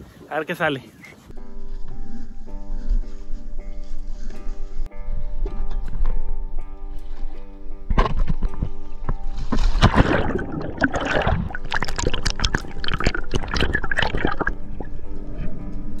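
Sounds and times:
background music with held notes: 0:01.3 - 0:16.0
water splashing and bubbling: 0:09.3 - 0:15.2.

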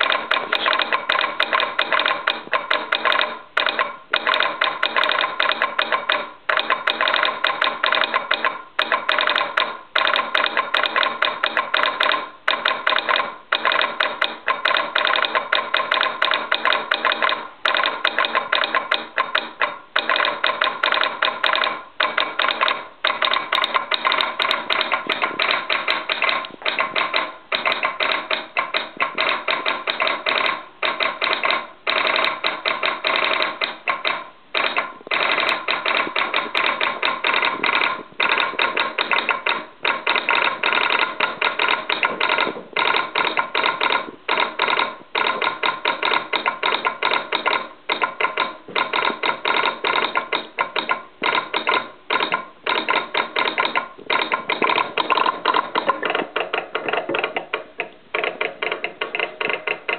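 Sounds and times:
telegraph sounder clicking morse: 0:00.0 - 0:59.9.

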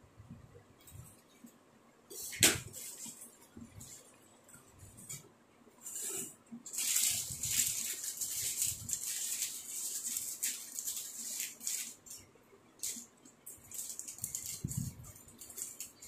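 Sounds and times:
plastic snack packet crackling: 0:06.7 - 0:12.2, 0:12.8 - 0:16.0.

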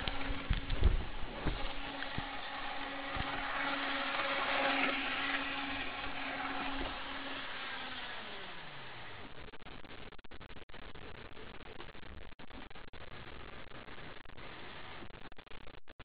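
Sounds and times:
small electric motor whining: 0:00.0 - 0:09.3.

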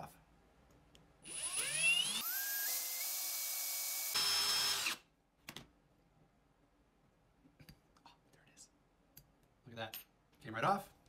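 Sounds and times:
cordless drill motor whining: 0:01.2 - 0:05.0.

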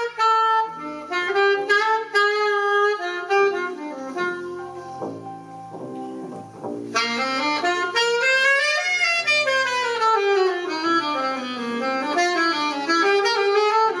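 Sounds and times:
horn playing a melody: 0:00.0 - 0:14.0
plucked upright bass: 0:04.9 - 0:07.0.

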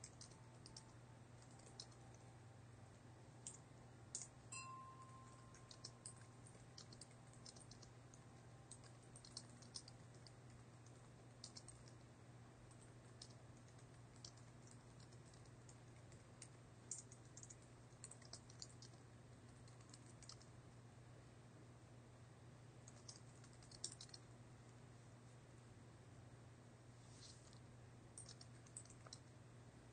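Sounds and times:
typing on a keyboard: 0:00.0 - 0:02.2, 0:05.0 - 0:12.0, 0:12.7 - 0:20.5, 0:22.8 - 0:24.3, 0:28.2 - 0:29.3
steady low hum: 0:00.0 - 0:29.9.

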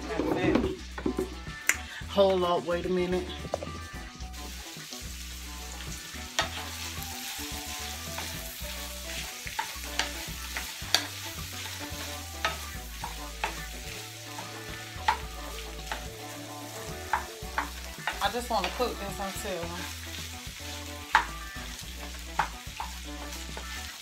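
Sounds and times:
onions sizzling in skillet: 0:00.0 - 0:24.0
wooden spoon knocking pan: 0:21.1 - 0:21.4, 0:22.3 - 0:23.7.

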